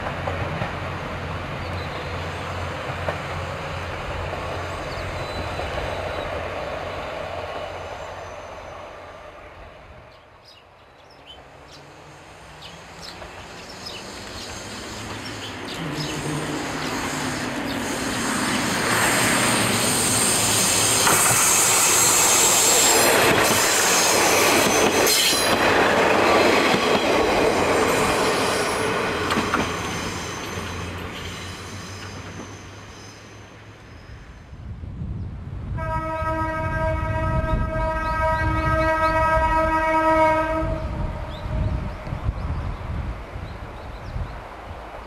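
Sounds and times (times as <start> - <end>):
diesel train engine: 11.4 - 34.9
high wheel squeal: 13.6 - 25.6, 29.7 - 34.3.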